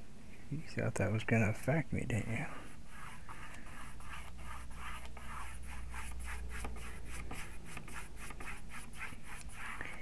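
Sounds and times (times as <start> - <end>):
paintbrush scrubbing on a panel: 2.3 - 10.0.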